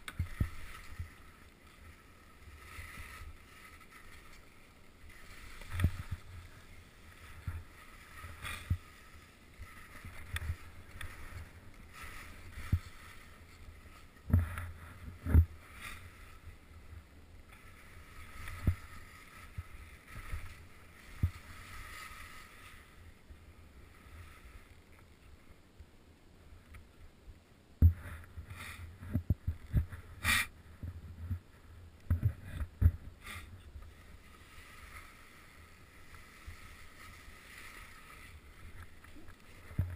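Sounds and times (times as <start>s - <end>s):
skis swishing through powder snow: 0.0s - 17.0s, 17.6s - 24.7s, 32.3s - 39.9s.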